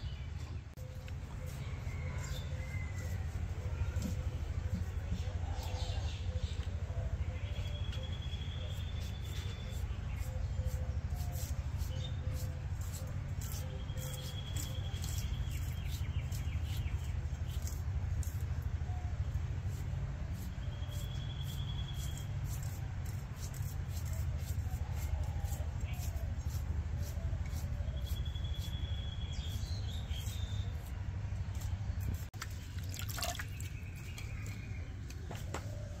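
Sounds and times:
birds calling and trilling: 0:00.0 - 0:36.0.

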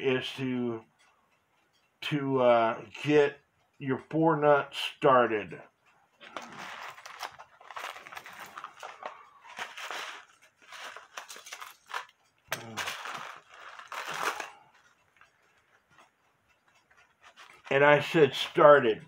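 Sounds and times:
small metal parts clinking: 0:06.6 - 0:14.6.

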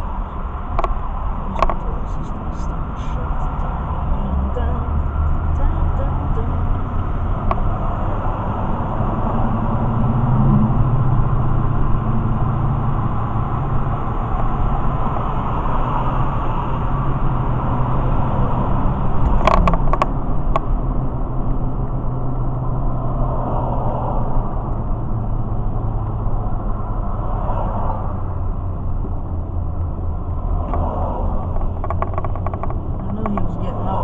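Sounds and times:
car engine and tyre drone: 0:00.0 - 0:34.0
sharp clicks: 0:31.4 - 0:33.5.

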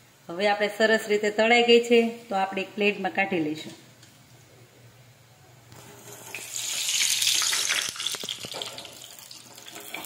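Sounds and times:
patties sizzling in hot oil: 0:05.7 - 0:10.0.

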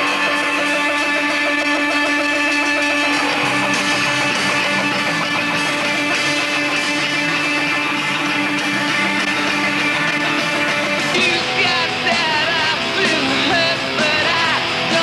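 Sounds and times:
punk rock guitars: 0:00.0 - 0:15.0
person singing: 0:11.0 - 0:15.0.

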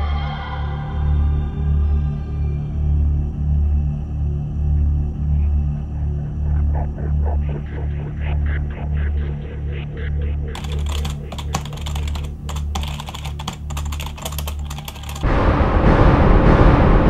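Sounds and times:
low pulsing music: 0:00.0 - 0:17.0
rapid keyboard typing: 0:10.6 - 0:15.3
loud crash in music: 0:15.2 - 0:17.0.

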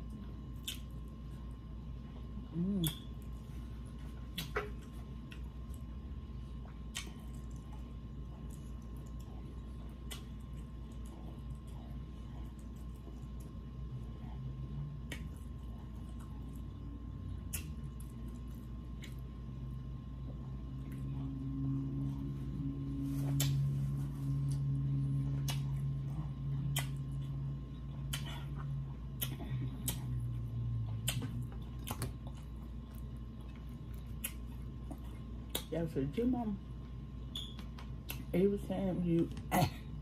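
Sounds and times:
mouth clicks and smacks eating: 0:00.0 - 0:01.3, 0:02.6 - 0:03.5, 0:04.1 - 0:05.9, 0:06.5 - 0:13.6, 0:14.9 - 0:19.4, 0:23.3 - 0:23.6, 0:25.3 - 0:35.8, 0:37.3 - 0:38.3
steady background hum: 0:00.0 - 0:40.0
closed-mouth vocal hum: 0:02.2 - 0:03.4.

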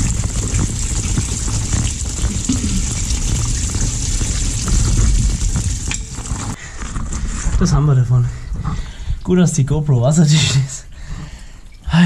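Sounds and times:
liquid splashing on camera housing: 0:00.0 - 0:06.6
coolant gushing and splashing: 0:00.0 - 0:07.2.

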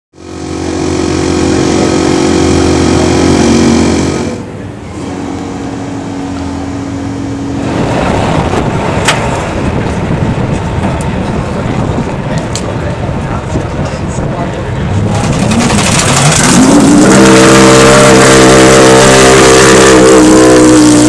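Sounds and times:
rush of noise: 0:00.2 - 0:21.0
race car engine idling: 0:09.0 - 0:17.2.

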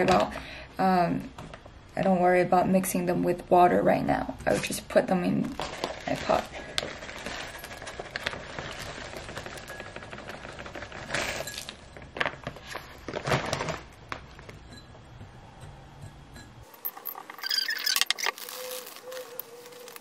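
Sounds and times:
soil pouring into a pot: 0:05.5 - 0:14.0
bag rustling: 0:05.5 - 0:14.6, 0:16.8 - 0:20.0.

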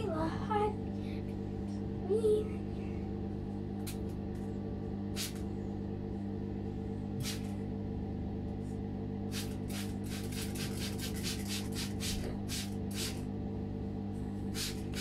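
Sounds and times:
steady low hum: 0:00.0 - 0:15.0
spray bottle squirting: 0:05.2 - 0:05.4, 0:07.2 - 0:07.5, 0:09.3 - 0:13.2, 0:14.6 - 0:15.0.

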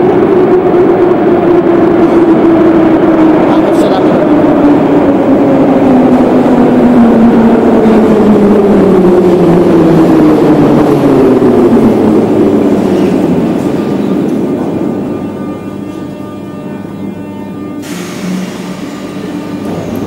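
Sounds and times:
falling whine of traction motors: 0:00.0 - 0:20.0
train rumble: 0:00.0 - 0:20.0.

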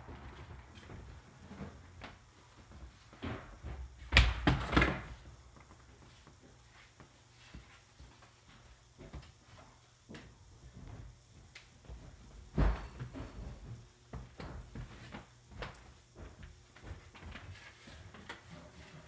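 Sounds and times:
knocks and thumps: 0:12.0 - 0:14.8.

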